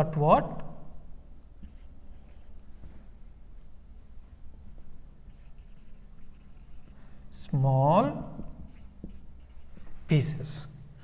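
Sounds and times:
faint high-pitched chirping: 0:00.0 - 0:10.8
steady low hum: 0:00.0 - 0:11.0
marker scratching on whiteboard: 0:01.6 - 0:02.8, 0:05.2 - 0:07.1, 0:08.2 - 0:10.1.

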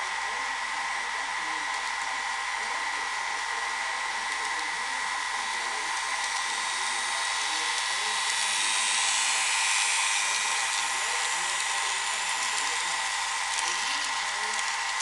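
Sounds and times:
electric motors whining: 0:03.0 - 0:15.0
wheels hissing on track: 0:04.8 - 0:15.0.

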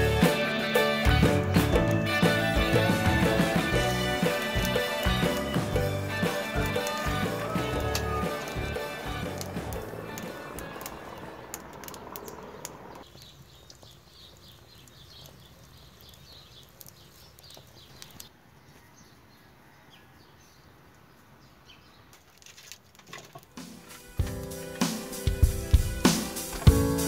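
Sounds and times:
wood fire crackling: 0:00.0 - 0:18.3, 0:22.2 - 0:27.0
sharp clicks: 0:09.4 - 0:15.4.

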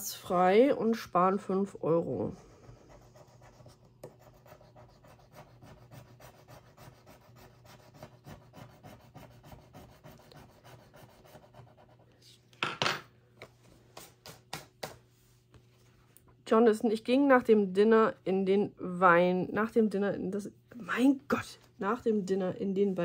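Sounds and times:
scratching a scratch card: 0:02.5 - 0:12.0.

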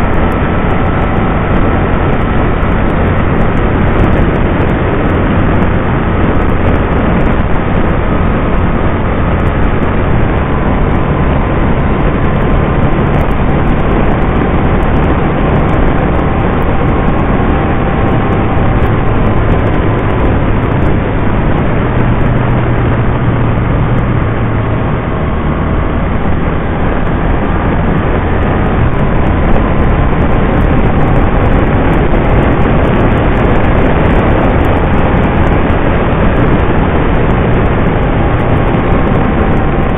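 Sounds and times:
engine hum: 0:00.0 - 0:39.9
wind and road noise: 0:00.0 - 0:39.9.

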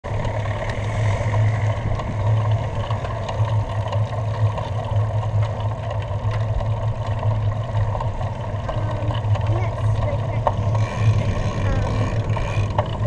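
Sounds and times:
wind buffeting microphone: 0:00.1 - 0:04.1.

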